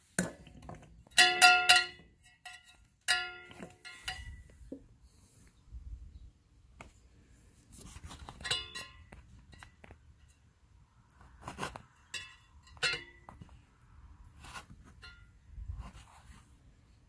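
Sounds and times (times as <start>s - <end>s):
sharp metallic clinks: 1.2s - 4.5s.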